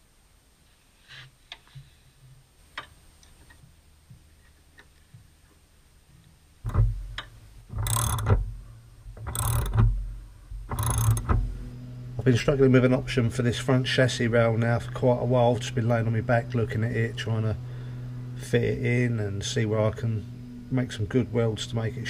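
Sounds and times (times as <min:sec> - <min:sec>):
metallic tool clicks: 0:07.2 - 0:08.4, 0:09.2 - 0:09.8, 0:10.7 - 0:11.3.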